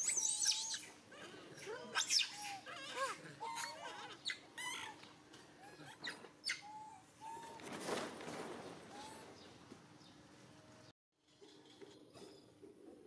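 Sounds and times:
macaque calls: 0.0 - 5.0.

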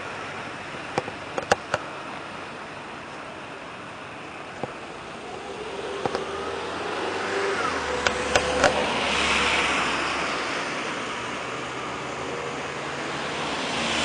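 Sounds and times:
vehicle passing: 4.9 - 14.0.

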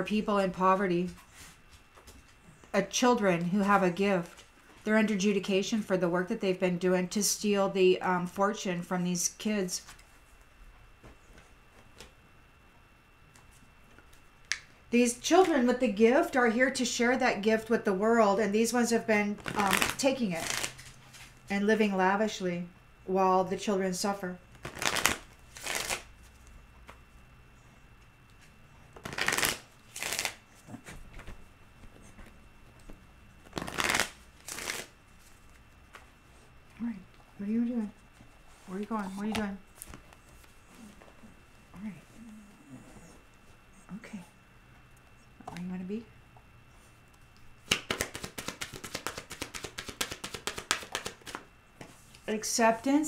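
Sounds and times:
cards being shuffled: 19.4 - 21.3, 24.5 - 26.1, 29.0 - 30.4, 32.2 - 34.9, 47.6 - 51.4.

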